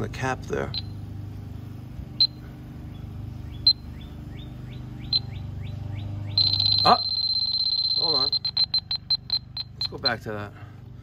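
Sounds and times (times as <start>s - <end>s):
continuous high alarm tone: 0.7s - 1.0s, 2.2s - 2.4s, 3.6s - 10.4s
leak detector beeping: 0.7s - 1.0s, 2.2s - 2.4s, 3.5s - 4.1s, 4.7s - 10.3s.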